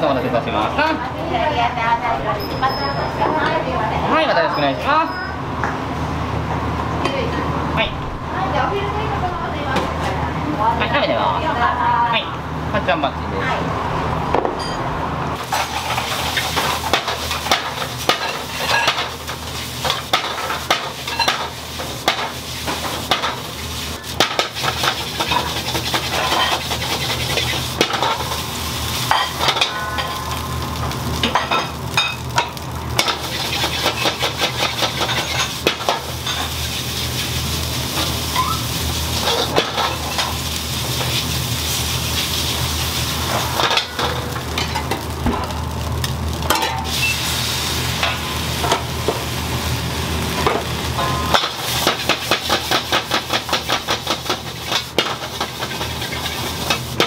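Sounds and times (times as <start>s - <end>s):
food sizzling in a pan: 15.4s - 57.0s
metal utensil scraping pan: 24.4s - 28.3s.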